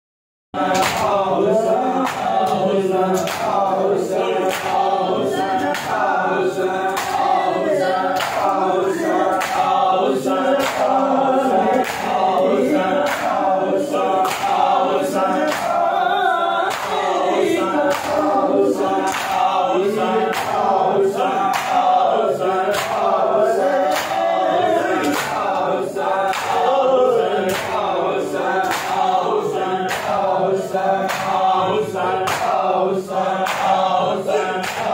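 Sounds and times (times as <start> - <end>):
crowd of men chanting: 0.6 - 34.9.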